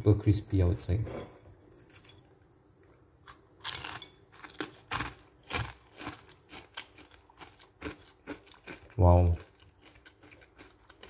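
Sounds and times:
crunchy food being chewed: 2.8s - 11.0s.

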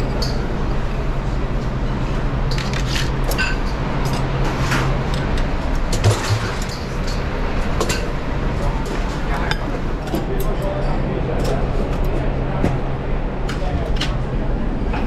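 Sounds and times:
busy kitchen roar: 0.0s - 15.0s.

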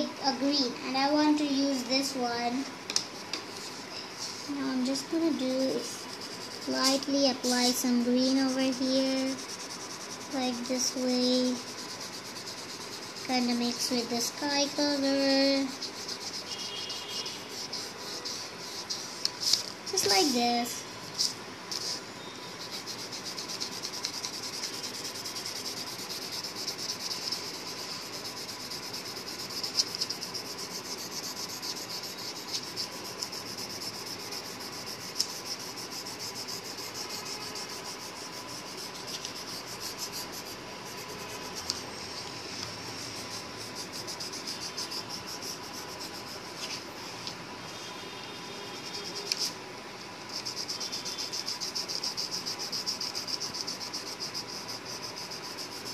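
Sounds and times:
pencil rubbing on paper: 3.2s - 46.8s, 48.7s - 49.6s, 50.3s - 55.9s
cricket trilling: 15.9s - 18.8s, 50.3s - 55.9s.

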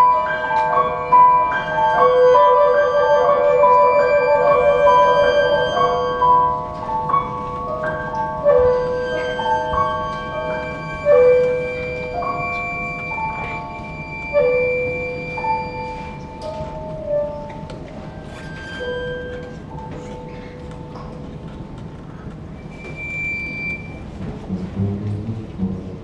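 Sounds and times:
chamber quartet playing slow piece: 0.0s - 20.7s, 24.4s - 26.0s.

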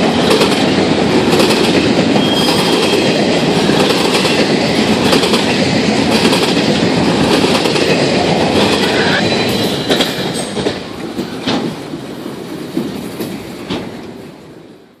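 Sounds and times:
train sharp clanks: 0.0s - 14.3s
train wheels clattering over rails: 0.0s - 14.6s.

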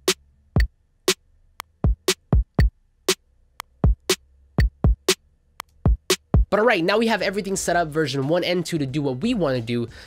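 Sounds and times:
drum machine kick thumps: 0.0s - 1.2s, 1.8s - 5.2s, 5.8s - 6.6s
crisp hi-hat ticks: 0.0s - 6.5s.

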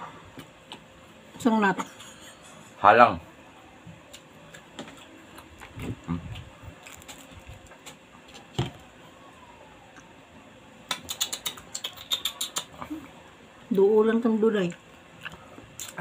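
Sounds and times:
mouth clicks and smacks: 10.9s - 13.0s, 15.2s - 16.0s.

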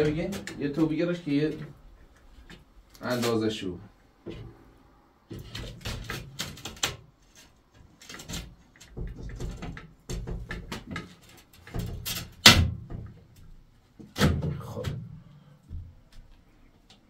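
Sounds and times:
glass window knocking and rattling: 8.3s - 11.1s, 11.7s - 13.2s.

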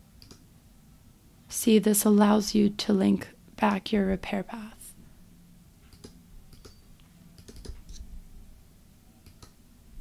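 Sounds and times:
computer keyboard and mouse clicks: 0.2s - 0.4s, 5.9s - 6.8s, 7.4s - 8.0s, 9.2s - 9.6s.

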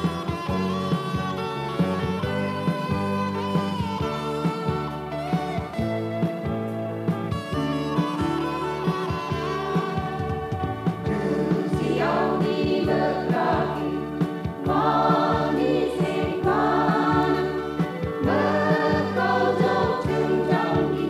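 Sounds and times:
band accompaniment: 0.0s - 21.0s
group singing gospel song: 11.0s - 21.0s.

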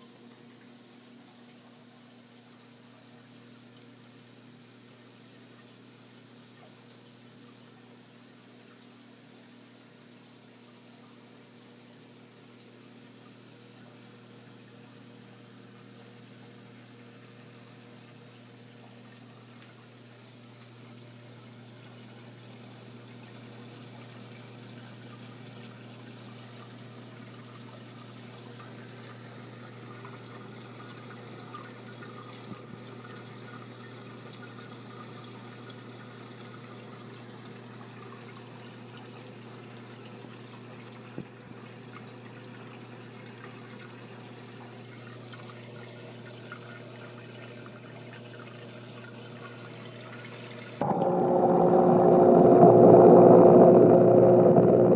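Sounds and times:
pump hum: 44.8s - 54.9s.

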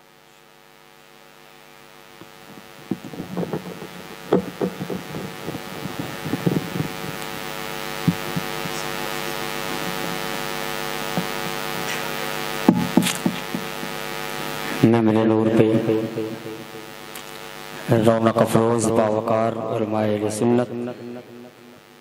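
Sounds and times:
mains hum and hiss: 0.0s - 22.0s
microphone knocks and bumps: 2.2s - 7.4s, 8.0s - 8.8s, 12.7s - 14.0s.

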